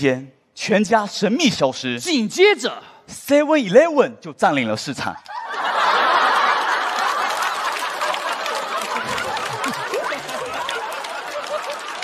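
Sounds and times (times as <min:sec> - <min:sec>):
studio audience laughing: 0:05.2 - 0:12.0.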